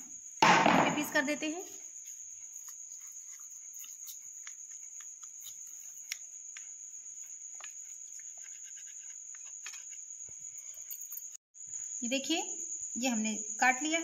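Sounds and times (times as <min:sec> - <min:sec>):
crickets trilling: 0:00.0 - 0:14.0
faint clicks and taps: 0:03.8 - 0:10.4.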